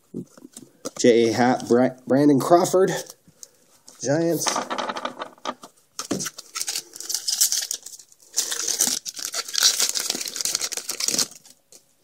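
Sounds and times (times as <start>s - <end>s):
foil wrapper tearing and crinkling: 6.0s - 11.8s.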